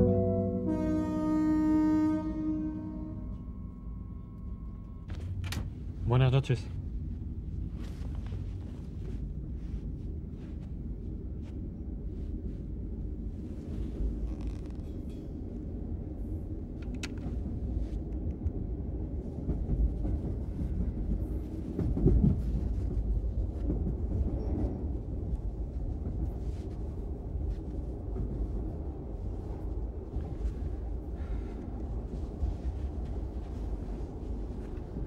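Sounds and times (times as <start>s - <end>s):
low surge: 0.0s - 5.1s
train rumbling: 0.0s - 35.0s.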